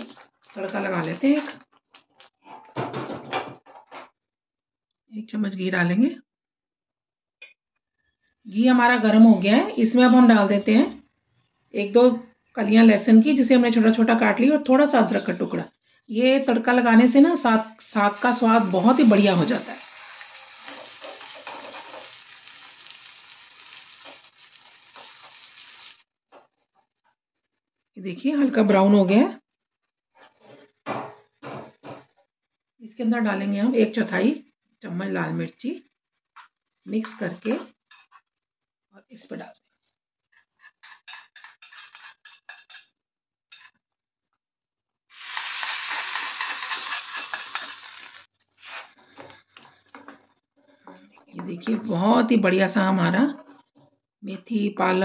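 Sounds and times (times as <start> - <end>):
garlic sizzling in hot fat: 18.1 - 26.1, 45.1 - 48.3
spoon stirring and knocking pan: 20.6 - 22.3, 23.9 - 25.5, 40.6 - 43.8, 46.1 - 48.1
metal spoon scraping steel pan: 40.6 - 42.9, 46.2 - 48.8.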